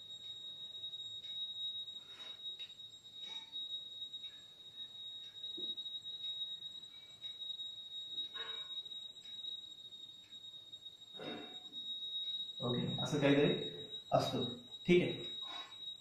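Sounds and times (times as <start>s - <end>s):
steady high-pitched whine: 0.0s - 16.0s.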